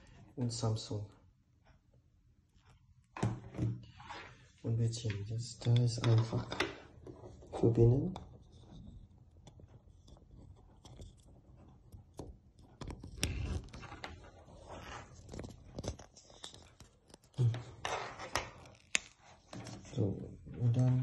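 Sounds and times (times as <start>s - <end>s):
clicks and knocks of cable: 15.2s - 19.9s.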